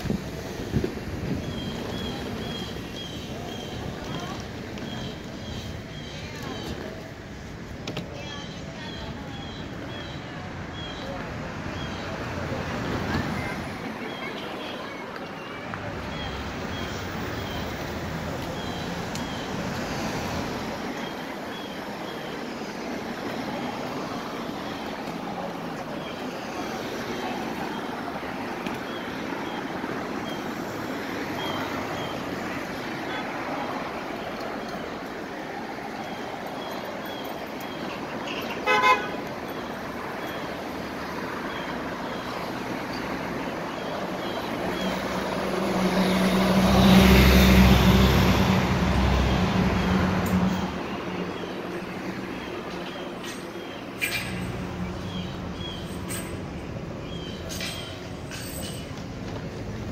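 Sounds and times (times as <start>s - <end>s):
city street traffic: 0.0s - 59.9s
car horn toot: 38.2s - 39.2s
large vehicle passing close: 44.4s - 52.4s.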